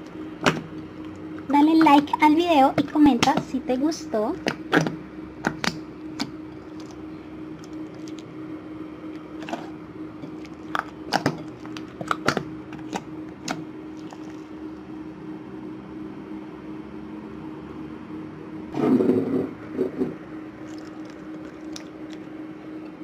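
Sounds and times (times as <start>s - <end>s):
low hum: 0.0s - 23.0s.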